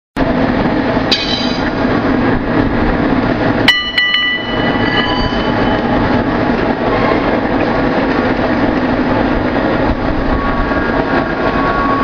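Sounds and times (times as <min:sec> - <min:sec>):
sharp metallic clanks ringing: 0:03.7 - 0:05.9.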